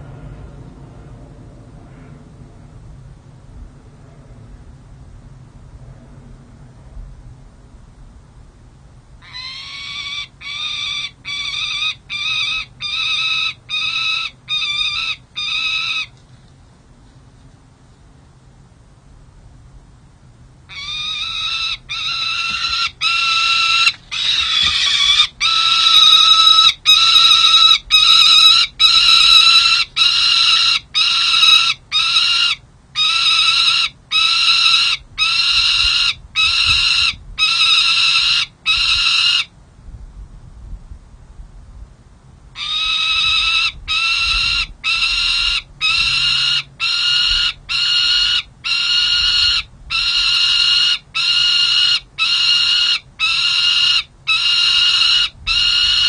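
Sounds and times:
falcon calling harshly: 9.2 - 16.1, 20.7 - 39.5, 42.6 - 56.0.

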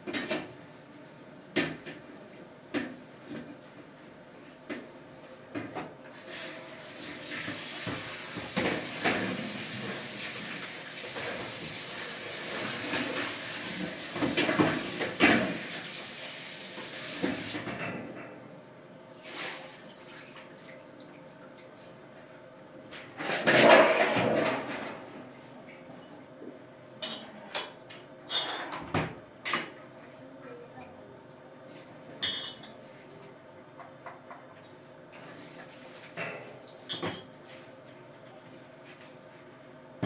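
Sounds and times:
tap water running onto metal tray: 7.2 - 17.6
dishes clattering into rack: 23.1 - 25.0, 27.0 - 29.8, 32.2 - 32.8, 36.2 - 37.3.

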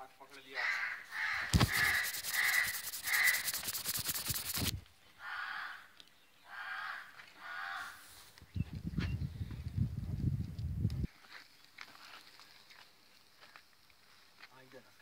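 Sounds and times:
short harsh animal calls: 0.8 - 4.7.

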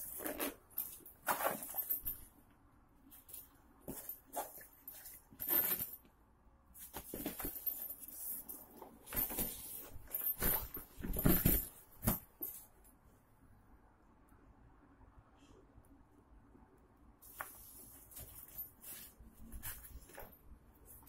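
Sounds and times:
backpack fabric rustling: 0.0 - 2.3, 3.2 - 5.9, 6.8 - 12.7, 17.3 - 21.0.

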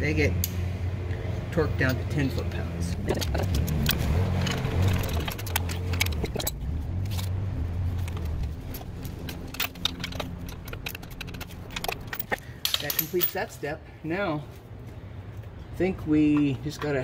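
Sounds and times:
metal hardware clinking: 3.0 - 7.4, 8.0 - 13.6
wrench clicking: 9.1 - 13.4.

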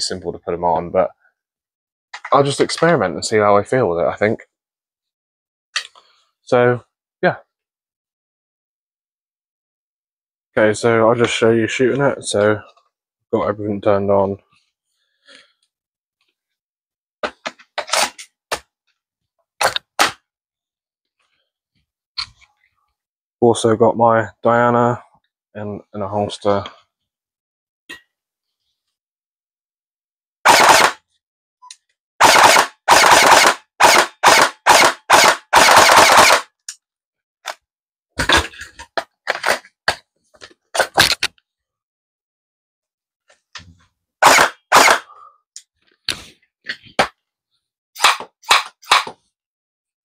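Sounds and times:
toy blaster shots: 30.5 - 31.0, 32.2 - 36.5, 44.2 - 45.1.

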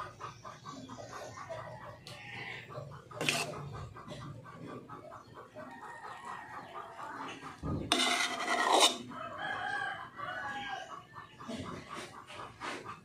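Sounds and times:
chickens clucking: 0.0 - 13.0
rooster crowing: 8.4 - 10.8.

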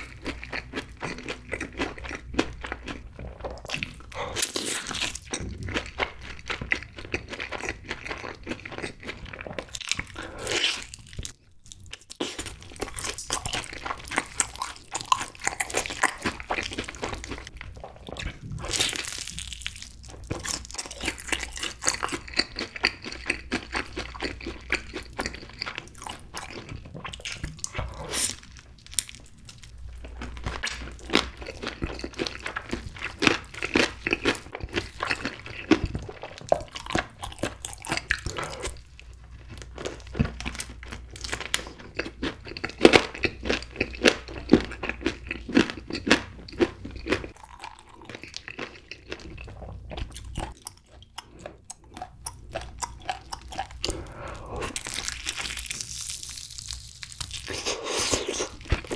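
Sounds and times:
crunchy fried chicken chewing: 0.0 - 58.9.

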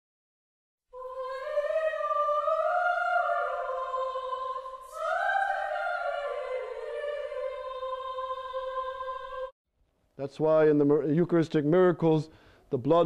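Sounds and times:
person singing operatically: 1.0 - 9.5.

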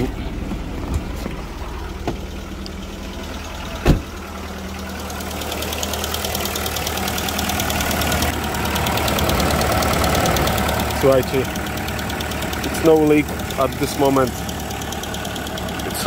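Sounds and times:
car engine idling: 0.0 - 16.0
engine light rapid ticking: 1.7 - 16.0
car door shutting: 3.7 - 4.2.

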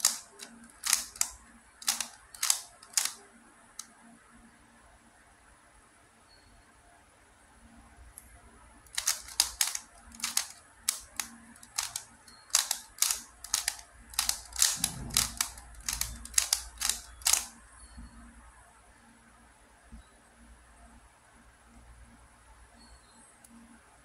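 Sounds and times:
plastic puzzle clacking: 0.0 - 3.2, 8.9 - 17.5.

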